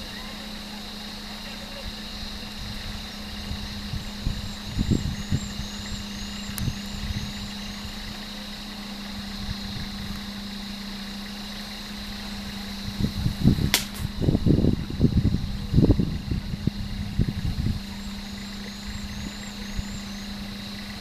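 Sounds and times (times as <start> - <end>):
vehicle engine idling: 0.0 - 21.0
sharp click: 13.7 - 14.1.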